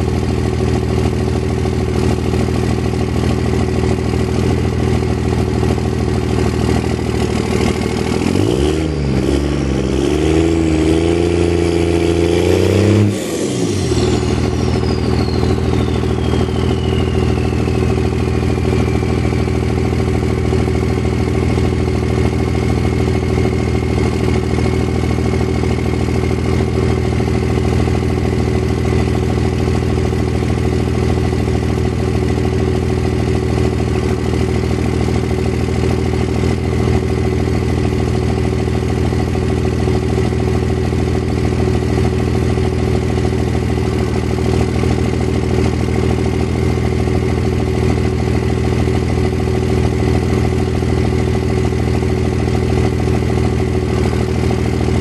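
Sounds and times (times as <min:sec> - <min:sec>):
high whine gliding down: 0:13.1 - 0:21.4.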